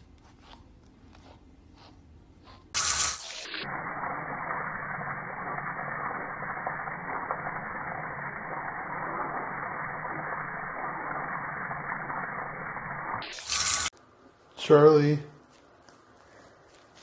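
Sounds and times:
water jet splashing on fur: 2.8s - 13.9s.

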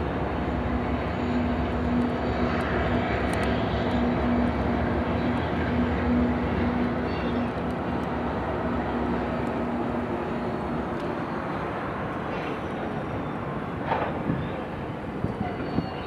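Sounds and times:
distant diesel locomotives rumbling: 0.0s - 16.0s.

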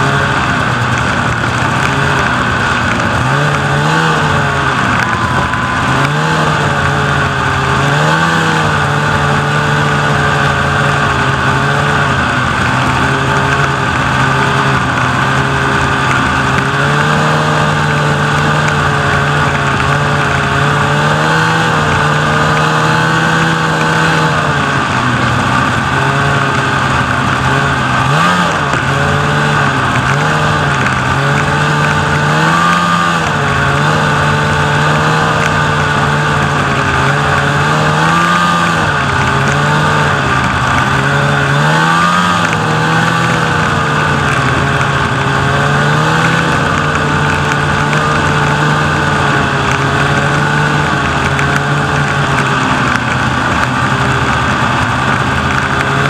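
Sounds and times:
snowmobile engine running: 0.0s - 56.0s.

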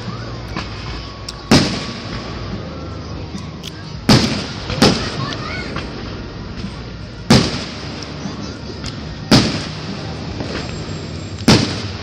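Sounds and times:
faint fireworks pops: 0.5s - 2.4s, 4.1s - 8.2s, 8.8s - 12.0s
fireworks booming: 0.6s - 2.6s, 4.0s - 8.3s, 9.2s - 12.0s.

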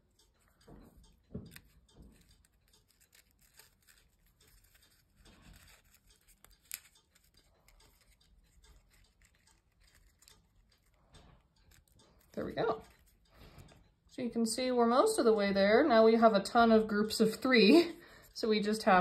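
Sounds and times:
small sharp ticks: 0.0s - 14.2s
paper rustling and crinkling: 1.6s - 8.2s.

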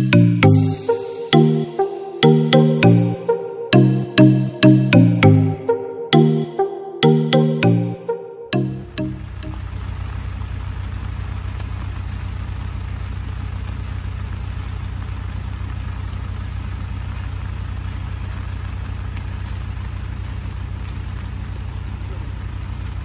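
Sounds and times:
pickup engine idling: 8.8s - 23.0s.

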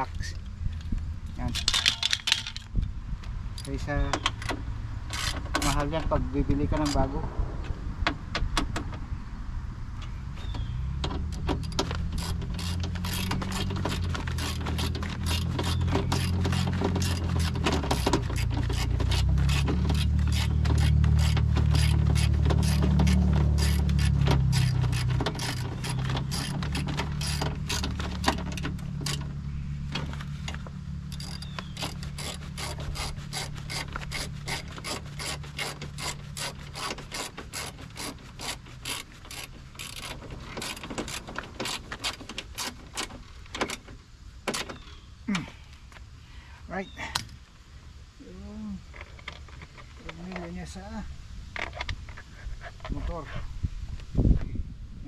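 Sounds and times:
low droning hum: 0.0s - 44.4s
ratchet wrench clicking: 11.3s - 29.2s, 31.1s - 43.1s.

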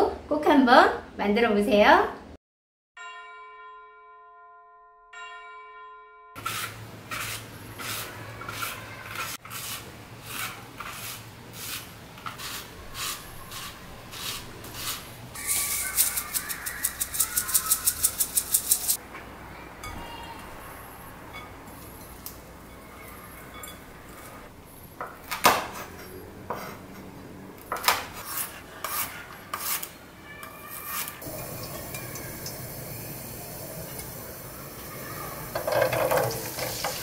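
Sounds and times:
hands tossing noodles: 6.4s - 19.0s
spiralizer crunching zucchini: 12.4s - 19.0s
rapid clicks: 15.9s - 19.0s.

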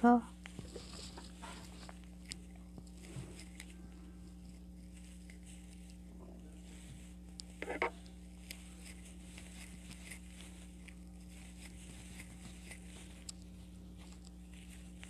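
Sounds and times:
steady low hum: 0.0s - 15.0s
crochet hook working yarn: 7.2s - 15.0s.

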